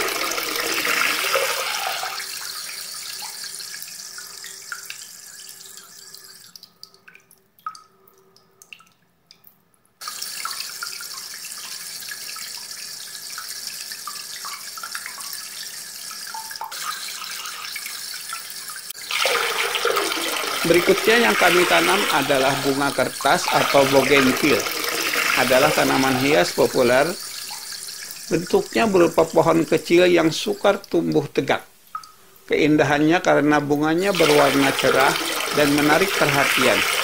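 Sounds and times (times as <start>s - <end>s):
running water rushing: 0.0s - 4.8s, 16.3s - 37.0s.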